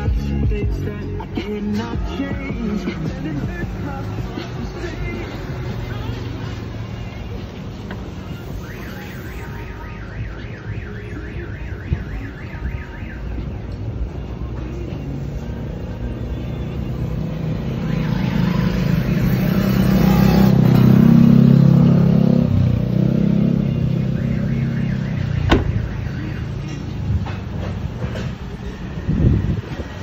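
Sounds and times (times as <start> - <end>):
vehicle engine passing: 17.0 - 24.8.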